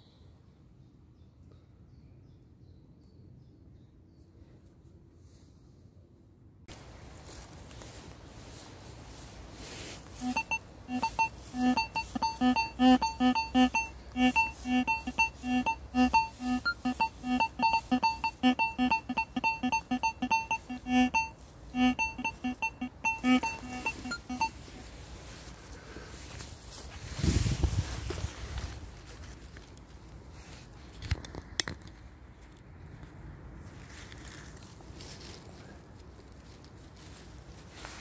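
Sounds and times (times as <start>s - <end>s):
metal detector beeping: 10.2s - 24.8s.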